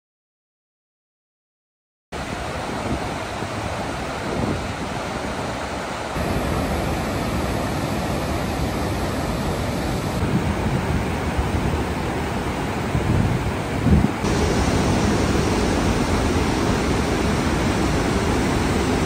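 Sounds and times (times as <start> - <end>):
steady rushing noise: 2.2 - 19.0.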